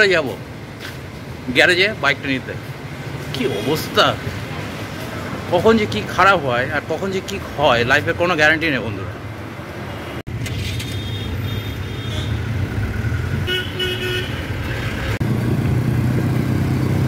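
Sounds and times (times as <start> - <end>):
engine and road rumble: 0.0 - 17.0
vehicle horns honking: 10.6 - 12.5, 13.4 - 14.6.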